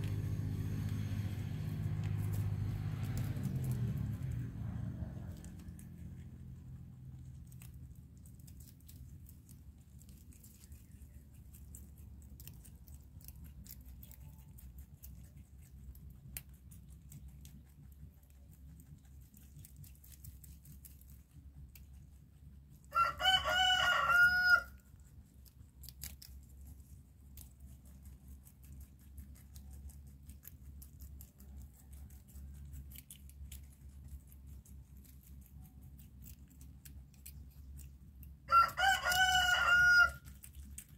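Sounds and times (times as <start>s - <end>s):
faint low hum: 0.0s - 40.9s
rooster crowing: 22.9s - 24.8s, 38.5s - 40.3s.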